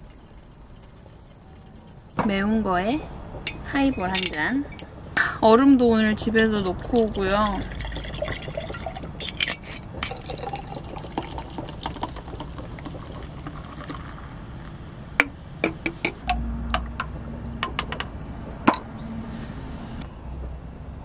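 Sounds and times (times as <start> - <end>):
soda foaming and fizzing: 7.0 - 15.1
liquid pouring into glass with ice: 7.4 - 14.2.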